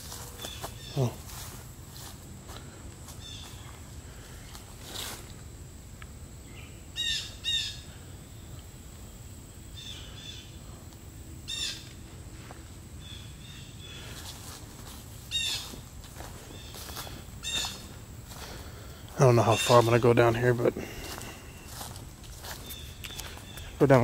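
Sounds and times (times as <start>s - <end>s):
footsteps on dirt trail: 0.0s - 5.4s, 11.8s - 12.8s, 13.9s - 24.0s
bird calling in harsh notes: 0.3s - 1.3s, 3.2s - 4.5s, 6.4s - 8.0s, 11.5s - 11.9s, 13.0s - 14.2s, 15.2s - 18.5s, 19.1s - 24.0s.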